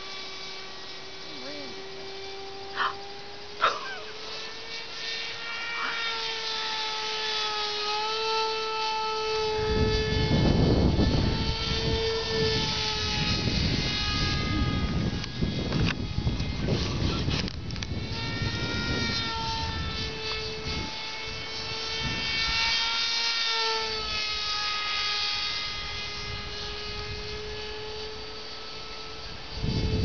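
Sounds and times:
model airplane engine whine: 0.0s - 30.0s
wind buffeting microphone: 9.4s - 22.8s, 29.2s - 30.0s.

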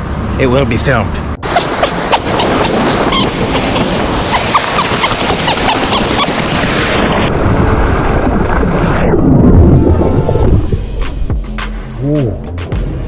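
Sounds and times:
crashing surf: 1.4s - 11.3s
water splashing: 1.4s - 11.3s
wind buffeting microphone: 1.4s - 11.3s.

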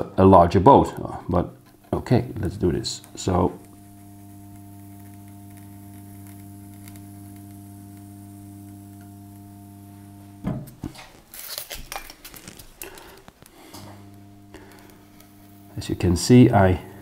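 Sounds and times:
hot-wire foam cutter humming: 0.8s - 17.0s
foam strips crackling and rustling: 10.8s - 13.6s.

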